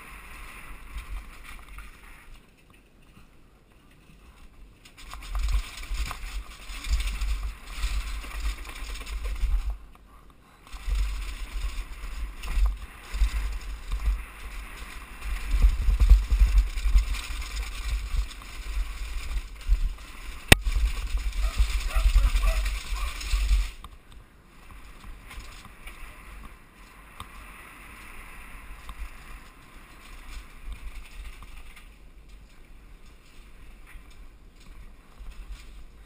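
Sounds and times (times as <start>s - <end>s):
mountain bike rattling on steps: 0.0s - 9.9s, 10.6s - 23.9s, 24.5s - 36.0s
wind buffeting microphone: 10.7s - 23.8s.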